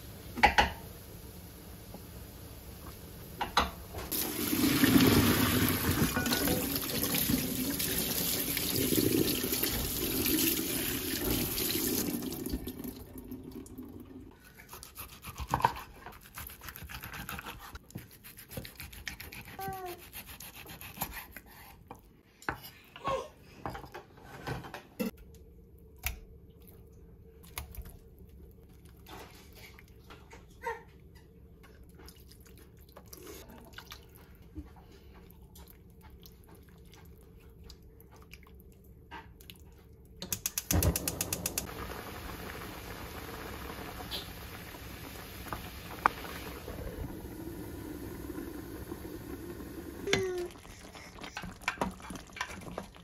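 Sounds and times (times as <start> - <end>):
kitchen tap running: 3.0 - 14.3, 40.2 - 53.0.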